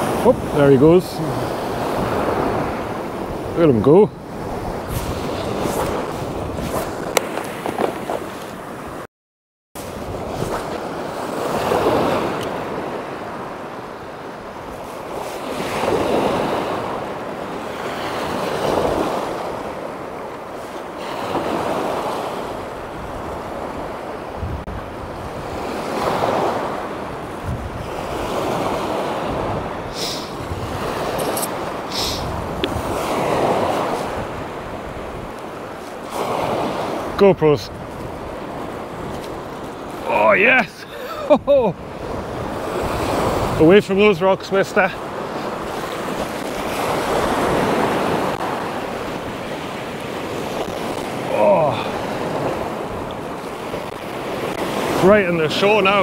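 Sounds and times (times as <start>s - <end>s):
wind on microphone: 0.0s - 9.0s, 9.8s - 44.1s
sea waves breaking on shore: 0.0s - 9.1s, 9.8s - 56.0s.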